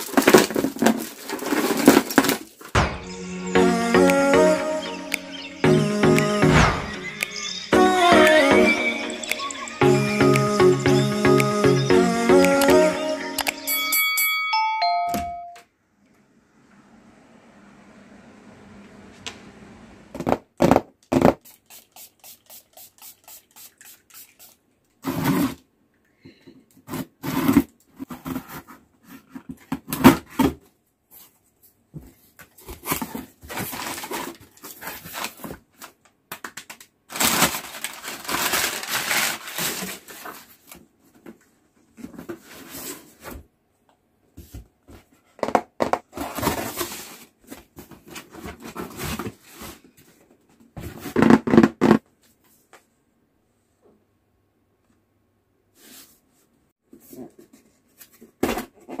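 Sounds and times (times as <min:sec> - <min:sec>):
cardboard flaps scraping: 0:00.0 - 0:02.6
paper packing rustling: 0:00.0 - 0:02.8, 0:32.5 - 0:41.4.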